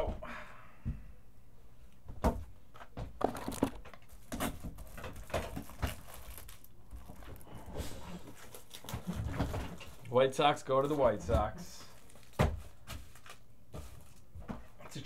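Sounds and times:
packaging tearing: 3.2 - 9.1, 11.9 - 13.4
packaging crinkling and rustling: 3.2 - 10.2, 11.8 - 14.3.

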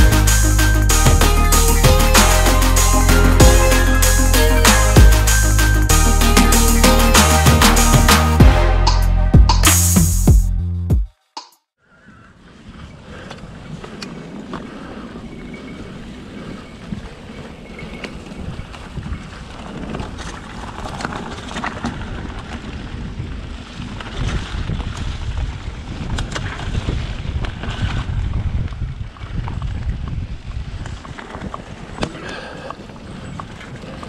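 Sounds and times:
tyre rumble on trail: 12.4 - 34.0
wind buffeting microphone: 12.4 - 34.0
bike clicks and rattles: 12.8 - 34.0.

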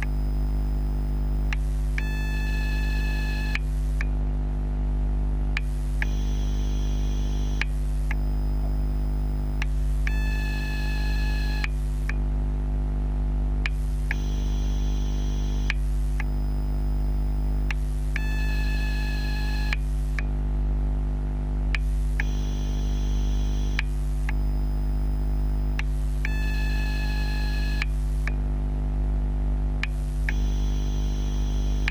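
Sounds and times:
high-pitched electrical whine: 0.0 - 4.0, 5.6 - 12.1, 13.6 - 20.2, 21.8 - 28.3, 29.8 - 31.9
steady low hum: 0.0 - 31.9
short electrical clicks: 21.8 - 24.6, 29.8 - 31.9.

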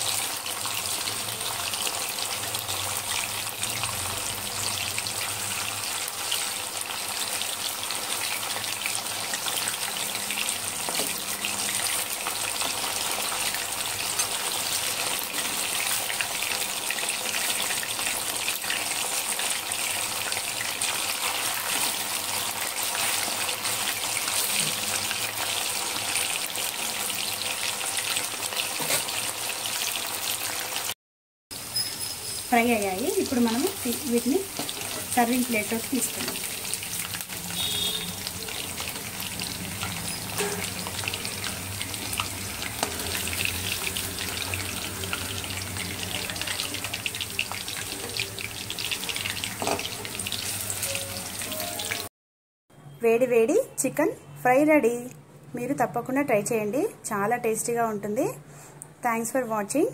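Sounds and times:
chicken deep-frying in hot oil: 0.0 - 52.1.

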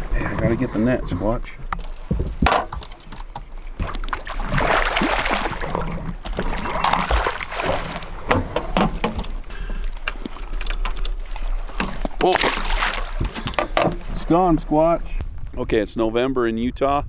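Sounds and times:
sharp knocks: 2.1 - 2.9
fish splashing in water: 3.8 - 8.3, 12.3 - 13.3.

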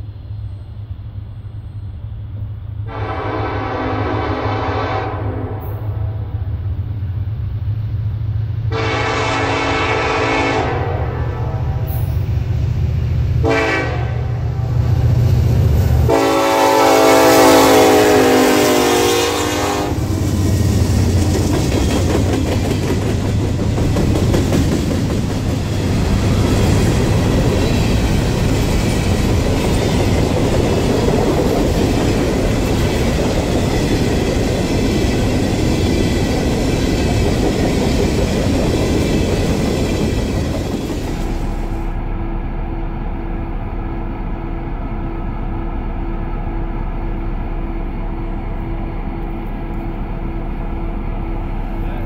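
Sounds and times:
train rumble and wheel clatter: 0.0 - 52.0
locomotive horn: 2.9 - 6.2, 8.7 - 12.1, 13.4 - 14.5, 16.0 - 20.1.

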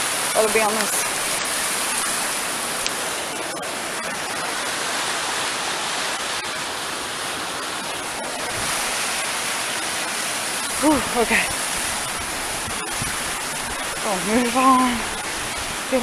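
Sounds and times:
river rapids rushing: 0.0 - 16.0.

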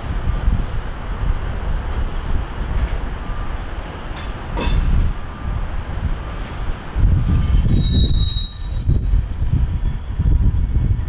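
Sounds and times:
freight train rumbling on rails: 0.0 - 11.0
train wheel squeal: 6.2 - 11.0.

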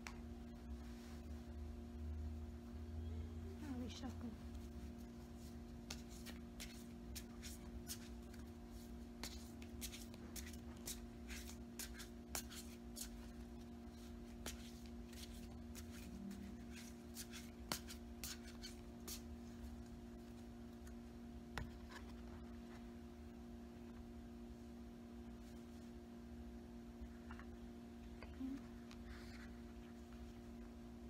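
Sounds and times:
cards shuffling: 5.8 - 19.3.

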